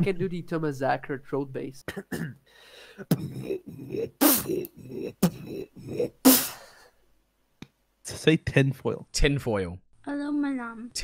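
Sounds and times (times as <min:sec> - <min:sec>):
beatboxing vocal bass pulses: 0:03.0 - 0:06.6
mouth snare and hi-hat hits: 0:04.1 - 0:05.5, 0:06.2 - 0:06.7.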